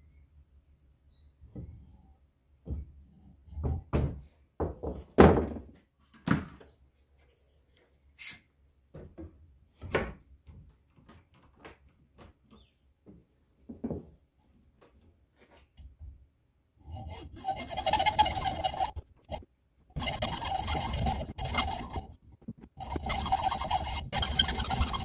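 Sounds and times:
tools knocking on wooden workbench: 0:03.6 - 0:05.7.

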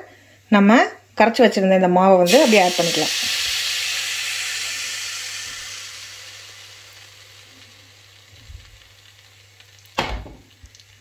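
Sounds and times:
batter sizzling in hot oil: 0:02.3 - 0:11.0.

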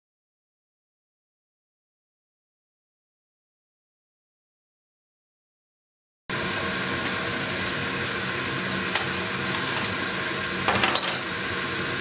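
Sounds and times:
ventilation fan and pump whirring: 0:06.3 - 0:12.0.

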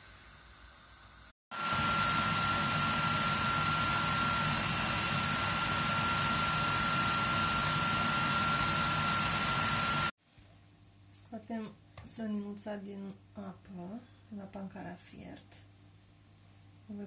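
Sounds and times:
pot boiling hard: 0:01.5 - 0:10.1.

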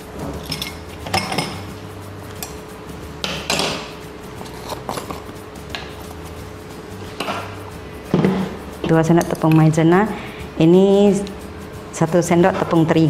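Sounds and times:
dishes and utensils clinking: 0:00.0 - 0:06.3, 0:07.0 - 0:09.8.

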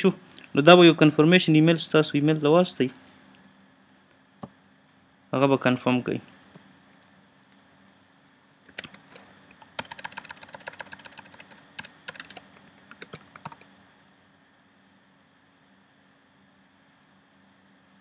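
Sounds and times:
faint low hum: 0:00.0 - 0:18.0
keyboard typing: 0:08.7 - 0:13.6.

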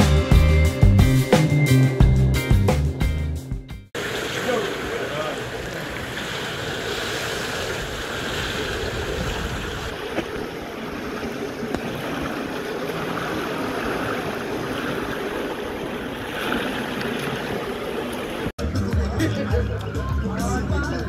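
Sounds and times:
pool water lapping: 0:04.0 - 0:18.6
wind on microphone: 0:07.4 - 0:12.4.

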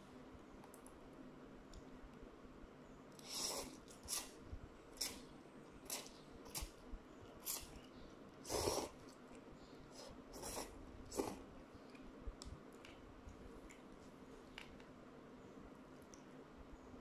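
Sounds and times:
person slurping noodles: 0:03.2 - 0:04.4, 0:08.4 - 0:09.1, 0:10.0 - 0:11.5.

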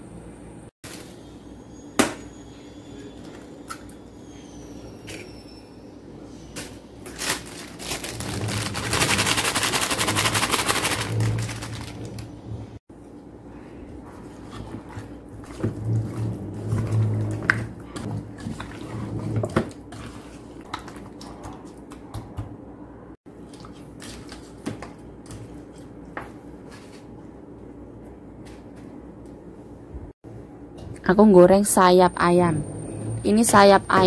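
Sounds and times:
wet squishing of hand mixing: 0:13.9 - 0:22.2, 0:23.3 - 0:27.1.

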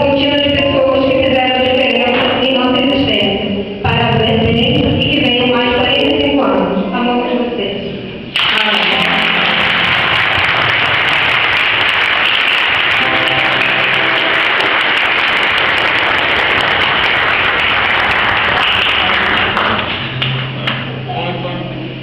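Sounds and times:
roomful of people clapping: 0:08.3 - 0:21.0.

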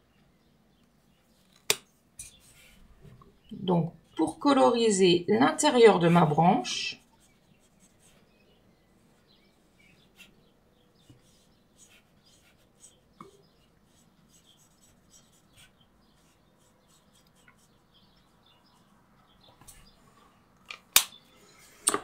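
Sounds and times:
marker tip scratching on card: 0:07.0 - 0:08.2, 0:11.0 - 0:17.8.

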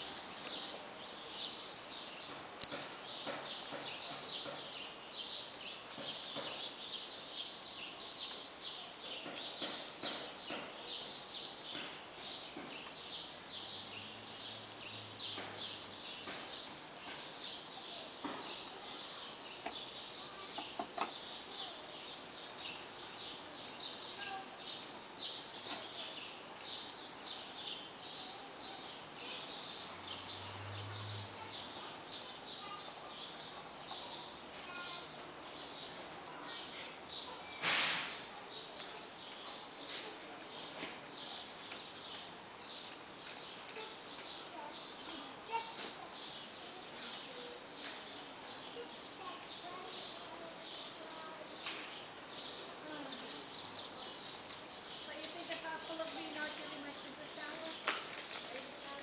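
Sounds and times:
small birds chirping: 0:00.0 - 0:59.0
clicks and rustles: 0:55.2 - 0:59.0.

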